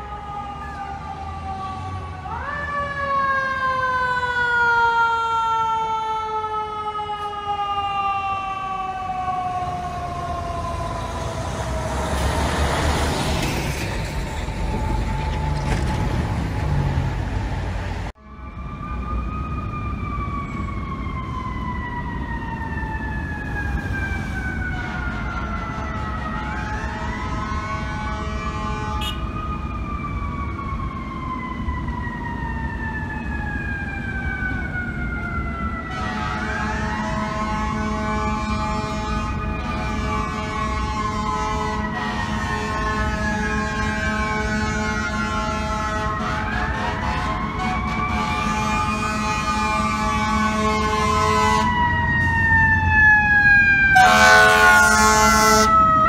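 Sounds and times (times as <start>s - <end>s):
fire truck siren wailing: 0.0s - 56.0s
steady horn-like tones: 27.3s - 29.3s, 35.9s - 51.7s, 54.0s - 55.8s.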